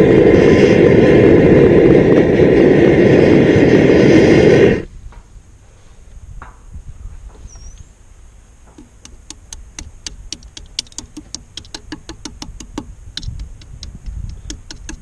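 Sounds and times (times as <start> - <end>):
low rumble: 0.0 - 15.0
cement crackling and popping: 8.6 - 15.0.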